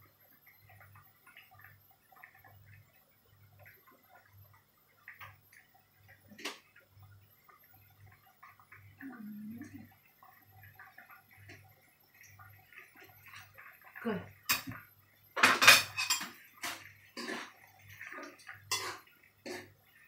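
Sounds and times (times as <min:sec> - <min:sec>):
metal utensils clinking on plates: 0:15.4 - 0:17.5, 0:18.3 - 0:19.7.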